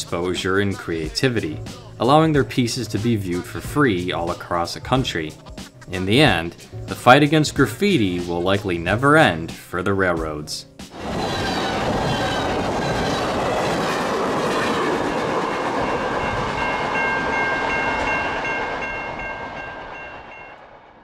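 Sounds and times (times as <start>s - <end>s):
train wheels clattering on rails: 10.9s - 20.9s
crossing warning bell ringing: 11.0s - 20.7s.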